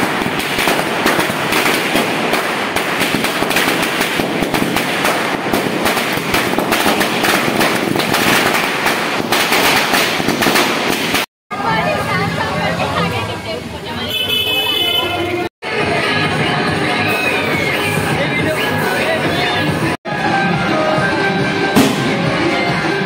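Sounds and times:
firecrackers cracking: 0:00.0 - 0:11.3, 0:21.8 - 0:22.4.

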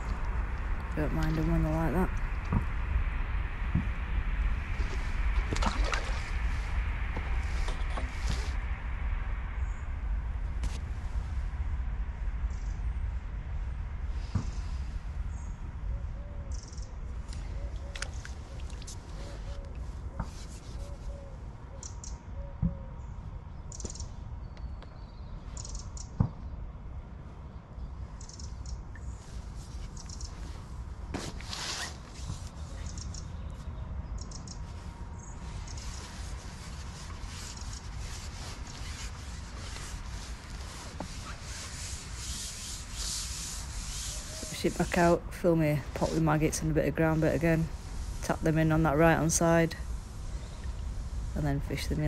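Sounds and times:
low rumble: 0:00.0 - 0:17.7.

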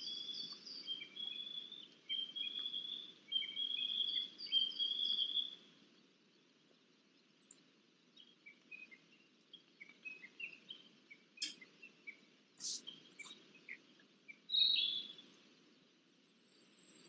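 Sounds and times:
birds chirping and twittering: 0:00.0 - 0:17.0
low steady background noise: 0:00.0 - 0:17.0.

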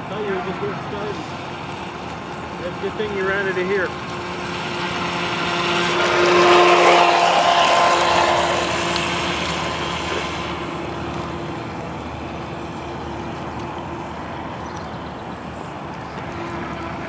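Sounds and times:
water hissing off hull: 0:00.0 - 0:14.6
electric motor whining: 0:03.0 - 0:13.9.

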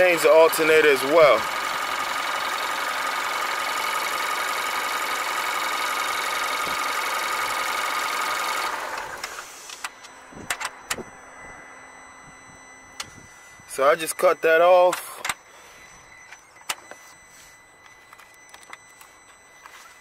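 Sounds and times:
car engine idling: 0:00.0 - 0:20.0
faint whine: 0:08.6 - 0:20.0
clicks: 0:14.1 - 0:15.4, 0:16.2 - 0:20.0.

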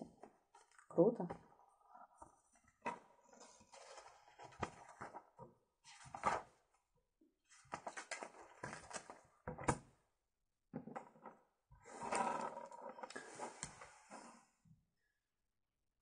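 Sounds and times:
paper rustling and crinkling: 0:02.8 - 0:05.2, 0:05.9 - 0:06.5, 0:07.5 - 0:09.2.

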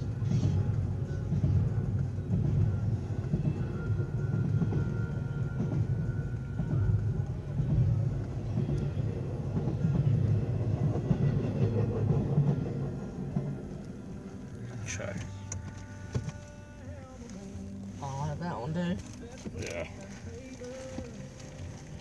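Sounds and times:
train wheels rumbling on rail: 0:00.0 - 0:17.1.

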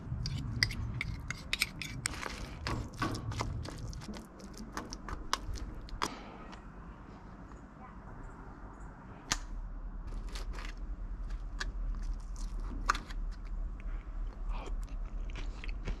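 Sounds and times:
spoon scraping foil tray: 0:00.2 - 0:05.2.

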